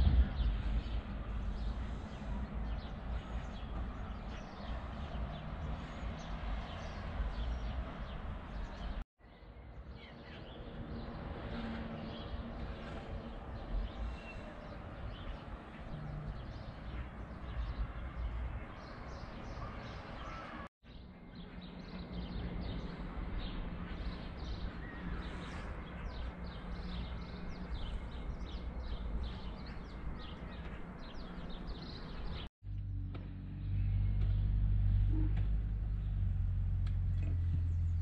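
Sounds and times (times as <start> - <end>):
loud low rumble: 0.0 - 2.0
small birds chirping: 0.0 - 32.5
outdoor background noise: 0.0 - 38.0.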